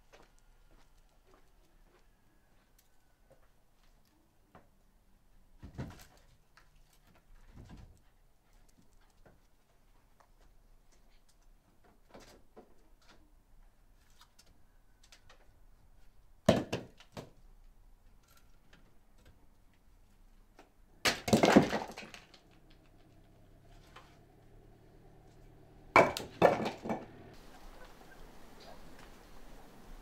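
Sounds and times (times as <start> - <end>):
sharp knocks and cracks: 16.5 - 17.4, 20.6 - 23.1, 25.3 - 27.3.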